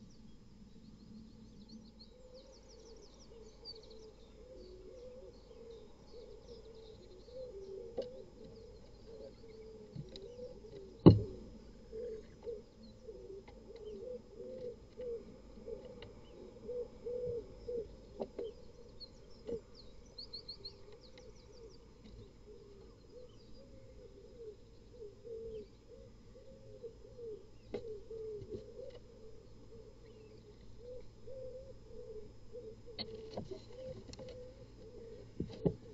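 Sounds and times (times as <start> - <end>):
low cooing calls: 2.0 - 35.9
sharp thump: 11.0 - 11.4.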